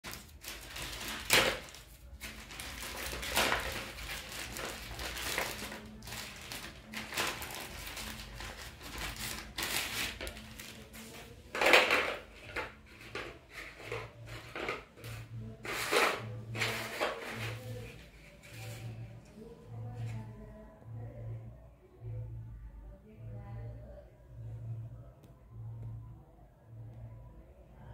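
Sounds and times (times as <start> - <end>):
plastic bag crinkling and tearing: 0.0 - 12.7.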